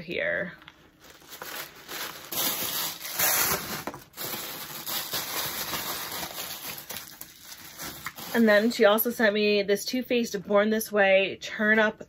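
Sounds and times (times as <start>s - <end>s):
gift packaging rustling: 0.6s - 8.9s.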